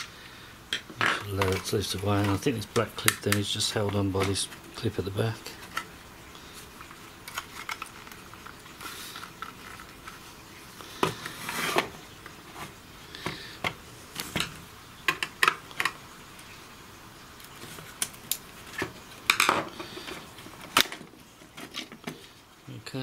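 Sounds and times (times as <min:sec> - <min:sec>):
plastic scraping: 0:01.0 - 0:05.9, 0:06.5 - 0:14.5.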